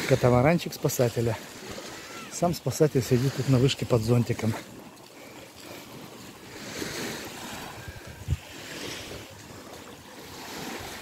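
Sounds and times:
small waves lapping on shore: 0:00.0 - 0:11.0
wind on microphone: 0:06.8 - 0:11.0.

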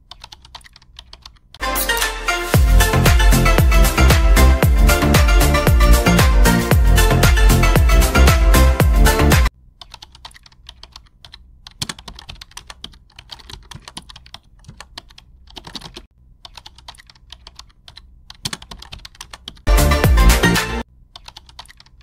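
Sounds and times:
keyboard typing clicks: 0:00.0 - 0:01.6, 0:09.8 - 0:19.7, 0:21.2 - 0:22.0
music: 0:01.6 - 0:09.5, 0:19.7 - 0:20.8.

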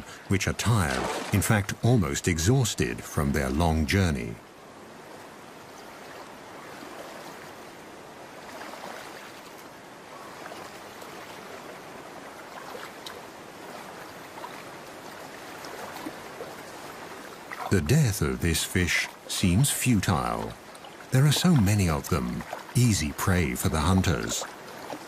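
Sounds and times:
stream water running: 0:00.0 - 0:25.0
faint small splashes: 0:00.8 - 0:01.6, 0:05.1 - 0:07.7, 0:08.4 - 0:17.7, 0:20.4 - 0:22.8, 0:23.8 - 0:25.0.

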